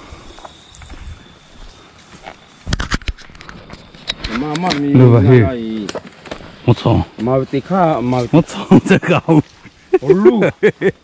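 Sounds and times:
sharp clicks and rustles: 2.0s - 5.0s.

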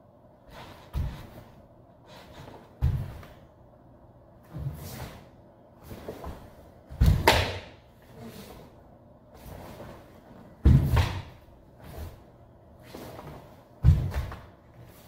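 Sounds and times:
bare feet thudding on wooden floor: 2.6s - 3.4s, 10.6s - 12.2s, 13.2s - 14.5s.

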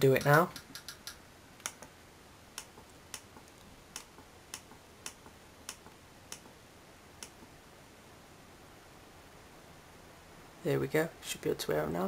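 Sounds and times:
faint background noise: 0.0s - 12.0s
computer mouse clicking: 0.2s - 1.9s, 2.6s - 6.5s.

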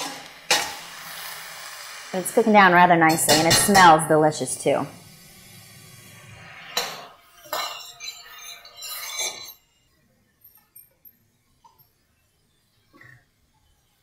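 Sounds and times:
vegetables simmering: 0.0s - 6.5s
broth poured into hot pan: 0.0s - 7.4s
metal spoon scraping pan: 3.1s - 4.1s, 6.4s - 9.8s.

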